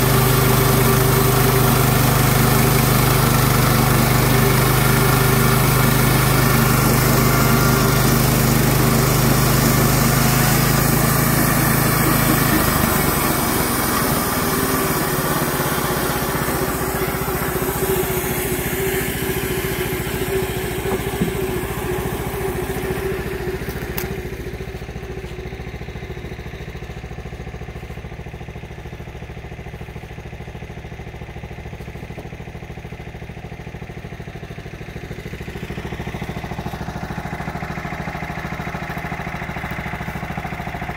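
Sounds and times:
bandsaw mill engine running: 0:00.0 - 0:40.9.

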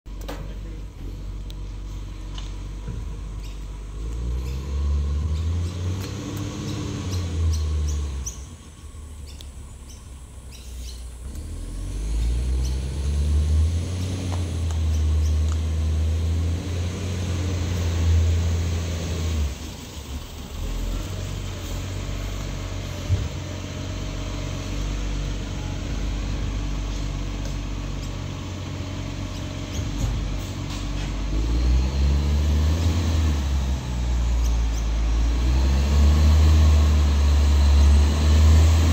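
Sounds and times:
diesel engine revving: 0:00.1 - 0:38.9.

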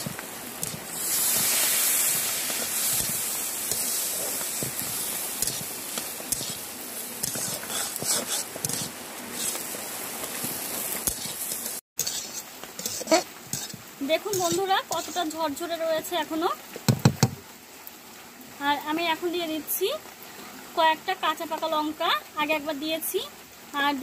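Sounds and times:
loud hiss of steam: 0:00.0 - 0:09.7
spatula scraping a pan: 0:00.0 - 0:09.8, 0:11.0 - 0:15.4
food sizzling in a pan: 0:00.0 - 0:24.0.

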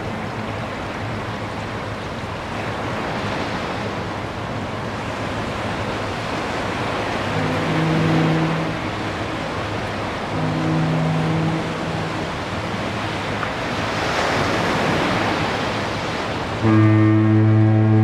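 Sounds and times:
surf washing onto beach: 0:00.0 - 0:18.0
foghorn low note: 0:07.2 - 0:09.5, 0:10.1 - 0:12.4, 0:16.6 - 0:18.0.

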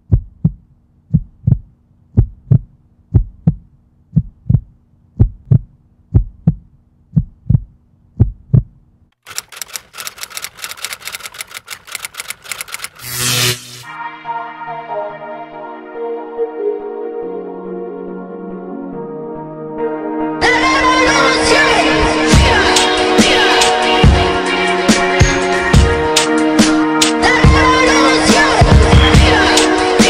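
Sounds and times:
heartbeat thumps: 0:00.0 - 0:08.8
rapid clatter of clicks: 0:09.2 - 0:13.5.

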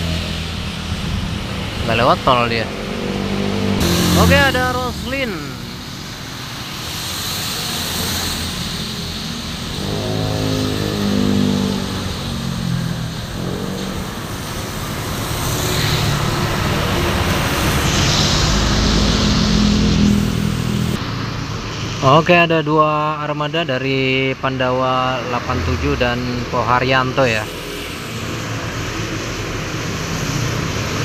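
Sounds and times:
coach engine rumble passing: 0:00.0 - 0:21.2
vehicle engine passing: 0:00.0 - 0:22.0, 0:24.4 - 0:31.0
tyres hissing on wet road: 0:00.0 - 0:31.0.

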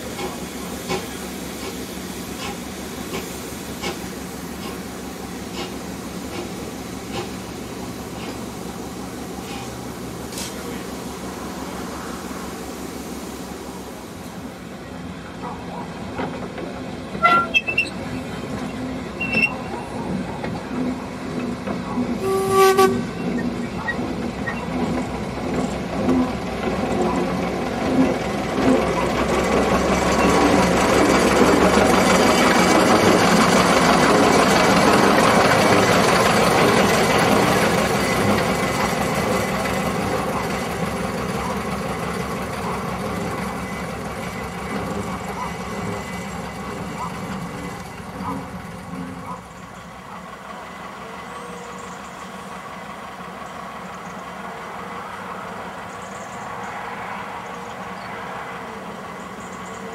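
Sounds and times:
goods wagons rumbling and clattering: 0:14.3 - 0:59.9
train whistle toots: 0:17.2 - 0:18.0, 0:22.2 - 0:23.4.

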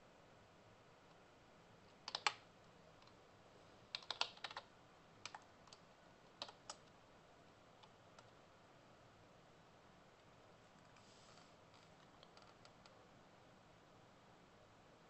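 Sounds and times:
typing on computer keyboard: 0:02.0 - 0:03.2, 0:03.9 - 0:06.9.

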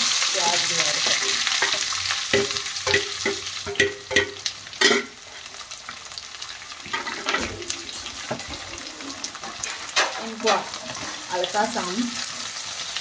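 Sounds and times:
onions sizzling in oil: 0:00.0 - 0:13.0
spatula scraping metal pan: 0:06.8 - 0:12.1.

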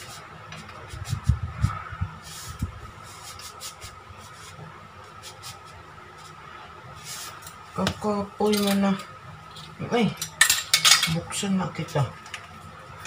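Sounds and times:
faint steady hum: 0:00.0 - 0:13.0
metal measuring spoons clinking: 0:10.2 - 0:11.2.

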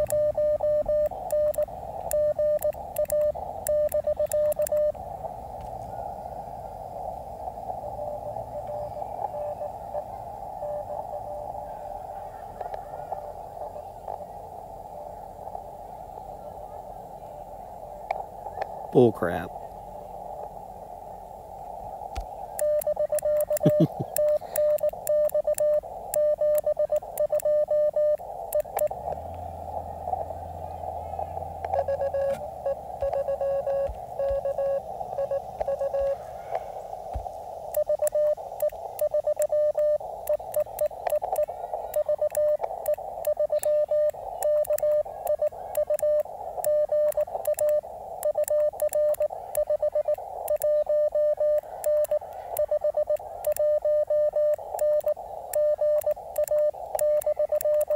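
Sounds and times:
morse code sidetone: 0:00.0 - 0:05.0, 0:07.4 - 0:14.2, 0:22.5 - 0:57.9
faint lower keyed tone: 0:00.0 - 0:19.6, 0:22.4 - 0:36.9
receiver hiss: 0:00.0 - 0:57.9.

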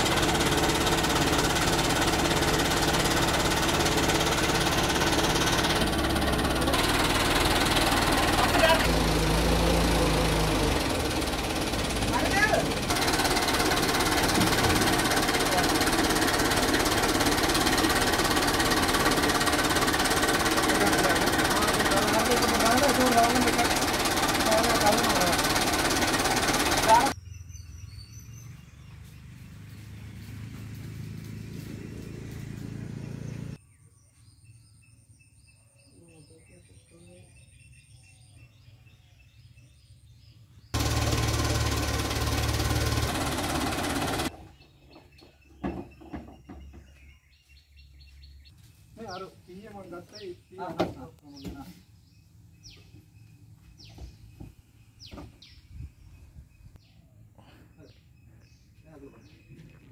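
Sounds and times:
diesel engine clattering: 0:00.0 - 0:27.2, 0:29.0 - 0:33.6, 0:40.8 - 0:47.1.

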